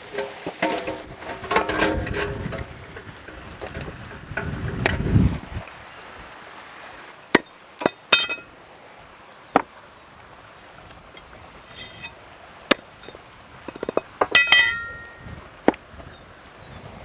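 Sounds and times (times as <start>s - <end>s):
metallic ring of blade: 8.1s - 8.9s, 11.7s - 12.2s, 14.4s - 15.2s.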